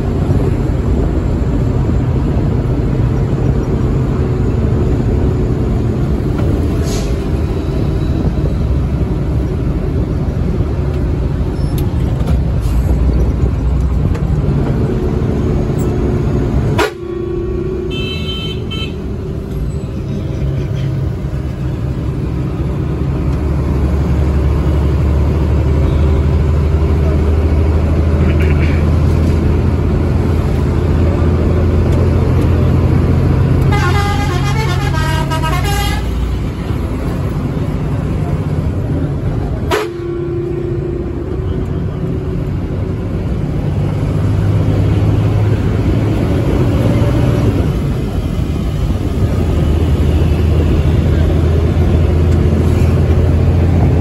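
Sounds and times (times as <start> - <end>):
bus engine and road drone: 0.0 - 54.0
high horn toot: 16.8 - 19.0, 33.6 - 36.3, 39.6 - 41.2.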